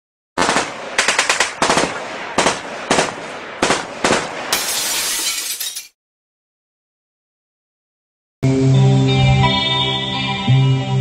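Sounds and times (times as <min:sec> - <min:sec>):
machine-gun fire bursts: 0:00.4 - 0:04.6.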